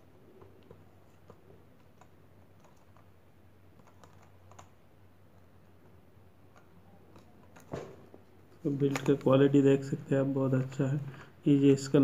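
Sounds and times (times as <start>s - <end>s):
faint clicks and taps: 0.3s - 3.1s, 3.7s - 8.2s.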